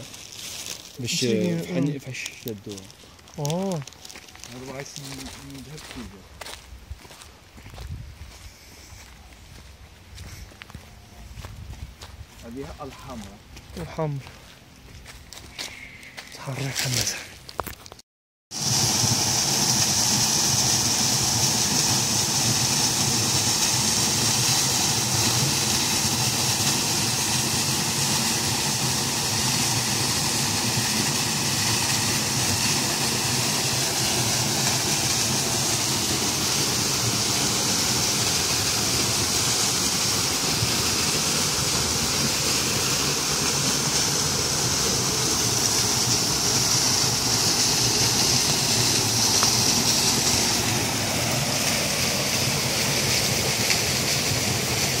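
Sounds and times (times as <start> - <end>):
waterfall splashing on stone: 18.5 - 55.0.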